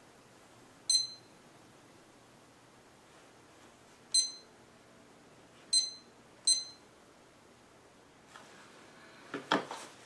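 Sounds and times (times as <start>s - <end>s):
high-pitched electronic beeps: 0.9s - 1.4s, 4.1s - 4.5s, 5.7s - 6.8s.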